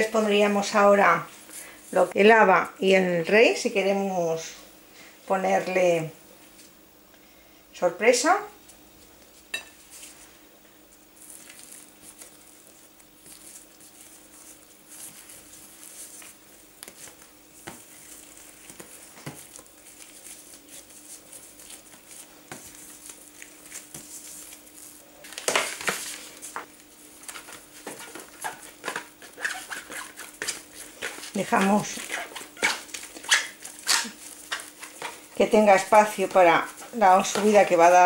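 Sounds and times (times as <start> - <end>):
plastic gloves rustling: 0.0 - 4.1, 8.2 - 38.0
dough scraping on baking tray: 27.5 - 38.0.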